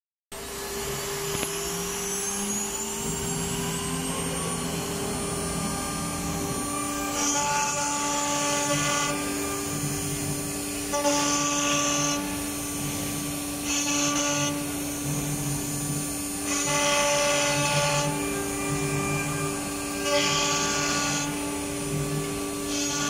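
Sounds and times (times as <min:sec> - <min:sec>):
router spindle whine: 0:00.4 - 0:23.0.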